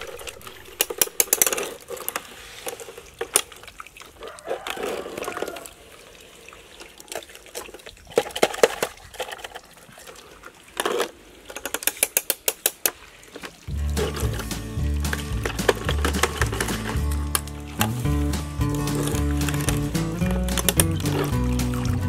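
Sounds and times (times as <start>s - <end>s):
water splashing and sloshing: 0.0s - 22.0s
wet sand dropping into plastic truck: 13.4s - 22.0s.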